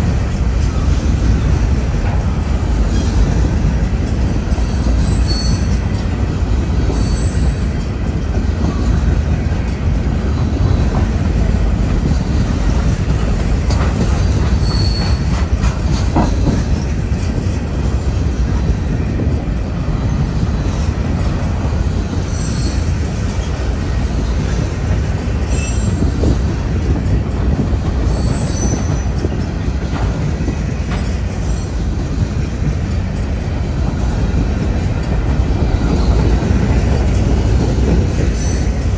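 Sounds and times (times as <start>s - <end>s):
train wheels rumbling on rail: 0.0s - 38.9s
wheel squeals: 4.5s - 6.1s, 6.8s - 7.9s, 14.0s - 17.0s, 22.2s - 24.6s, 25.4s - 26.4s, 28.0s - 29.6s.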